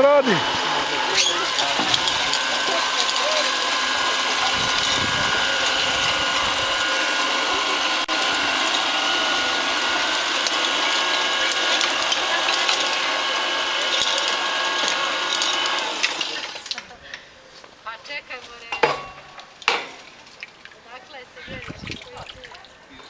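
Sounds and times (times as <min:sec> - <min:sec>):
drilling rig motor whine: 0:00.0 - 0:16.8
chain drive mechanical rattle: 0:01.1 - 0:06.8, 0:13.8 - 0:16.9.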